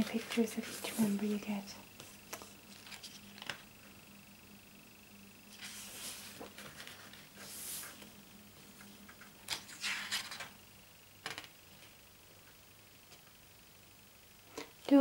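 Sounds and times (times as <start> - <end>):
paper pages rustling: 0.0 - 3.7, 5.5 - 10.5
paper crackle: 2.0 - 3.7, 5.5 - 10.5.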